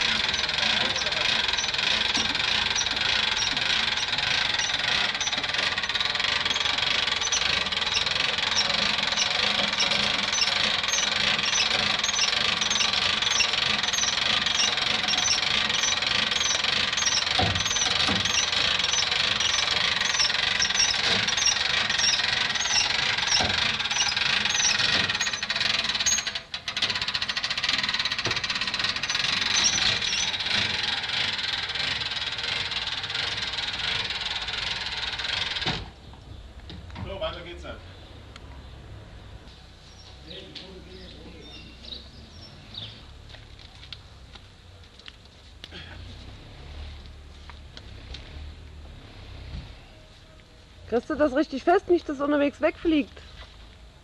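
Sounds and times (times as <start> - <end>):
regular ratchet clicking: 0.0 - 35.8
steady mechanical noise: 0.0 - 36.9.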